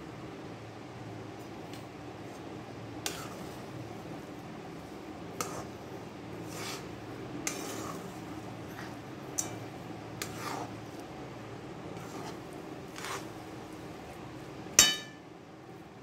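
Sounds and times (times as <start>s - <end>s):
steady low hum: 0.0s - 16.0s
spatula scraping in pan: 3.0s - 3.8s, 5.2s - 11.2s, 11.8s - 15.2s
spatula clinking against pan: 14.8s - 15.2s.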